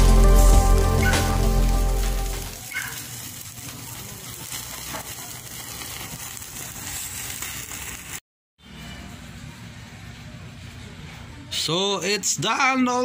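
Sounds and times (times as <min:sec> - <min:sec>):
chicken sizzling on a grill: 0:00.0 - 0:08.2
embers crackling: 0:00.0 - 0:08.2.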